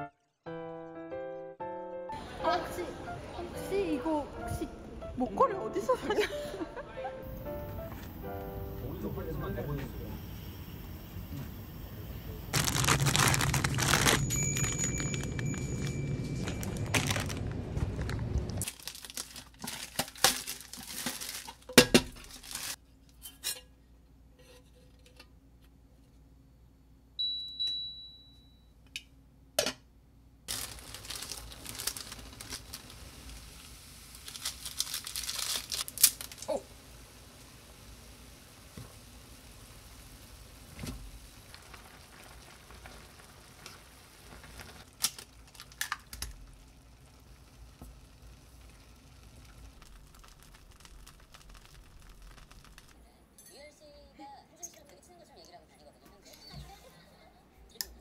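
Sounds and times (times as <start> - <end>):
low background hum: 2.2 - 58.0
packet crinkling and tearing: 12.5 - 22.8, 30.5 - 36.6, 44.2 - 46.6, 49.5 - 53.0
cooktop beep: 13.8 - 17.1, 27.2 - 28.8.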